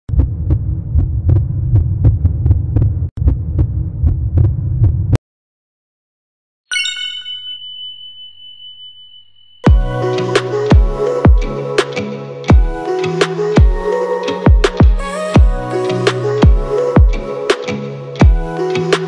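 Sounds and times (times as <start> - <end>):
deep throbbing bass pulse: 0.1 - 5.2, 9.7 - 11.6, 14.5 - 15.8
cascade of bright chime dings: 6.7 - 9.9
high ringing tone: 6.7 - 9.9.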